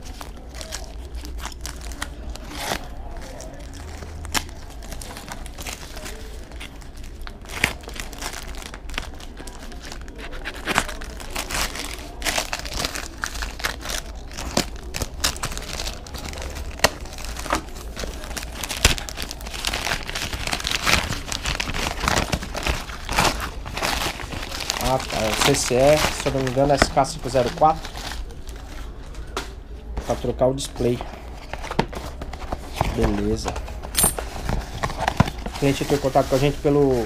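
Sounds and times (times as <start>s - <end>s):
paper tearing and crumpling: 0.0s - 29.0s.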